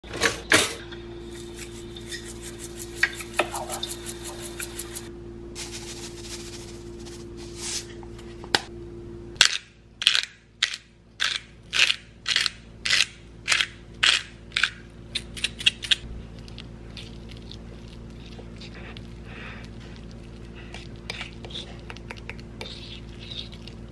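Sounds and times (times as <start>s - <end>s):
steady hum: 0.0s - 23.9s
fork scraping on a plate: 1.3s - 5.1s, 22.6s - 23.7s
pepper grinder crunching: 9.4s - 23.9s.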